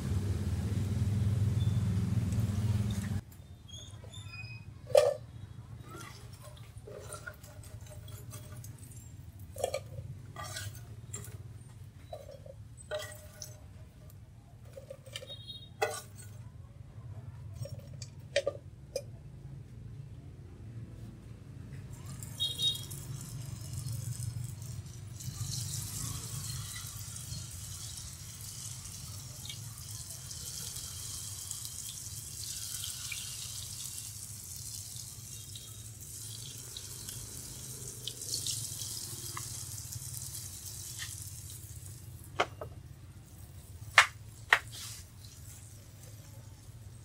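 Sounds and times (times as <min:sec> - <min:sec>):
batter sizzling in hot oil: 0:22.4 - 0:42.2.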